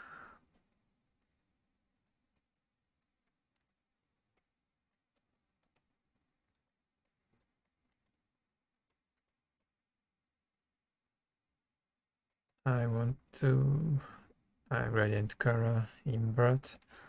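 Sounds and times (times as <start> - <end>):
computer mouse clicks: 2.0 - 8.2.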